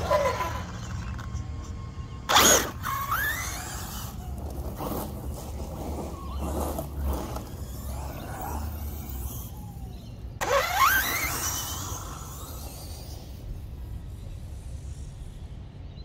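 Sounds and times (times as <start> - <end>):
electric motor whining: 0.0 - 13.4.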